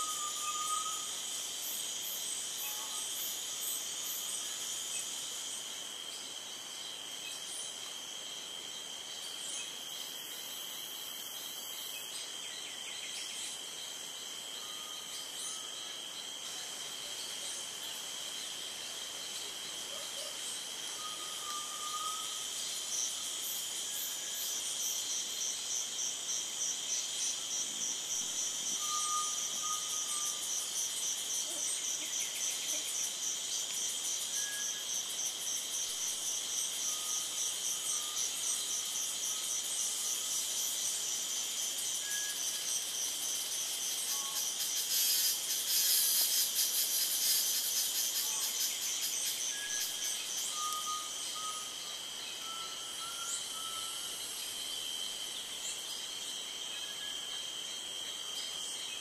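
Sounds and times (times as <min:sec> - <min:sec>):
crickets and insects trilling: 0:00.0 - 0:59.0
pulsing insect call: 0:00.0 - 0:59.0
faint whistles: 0:28.8 - 0:30.4, 0:50.5 - 0:51.8, 0:52.4 - 0:54.1.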